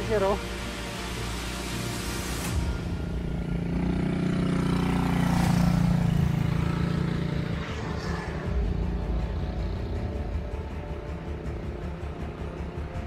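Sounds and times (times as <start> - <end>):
vehicle passing: 3.1 - 12.2.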